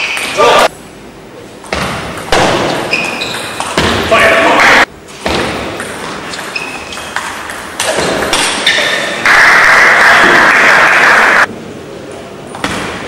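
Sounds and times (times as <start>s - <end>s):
table tennis ball pinging: 1.7s - 4.1s, 5.3s - 9.7s
crowd applause: 9.2s - 11.5s.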